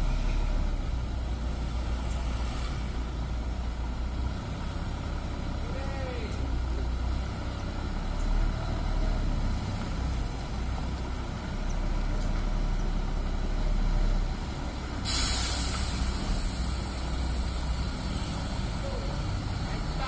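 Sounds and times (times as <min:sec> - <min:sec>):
bus diesel engine running: 0:00.0 - 0:20.0
air brake hiss: 0:15.0 - 0:17.6.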